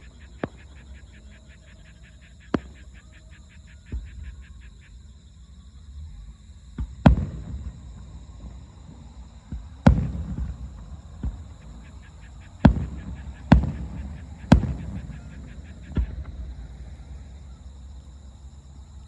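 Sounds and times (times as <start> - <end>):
firework booms with echo: 2.5 - 2.8, 6.8 - 16.7
smaller firework reports: 6.8 - 17.3.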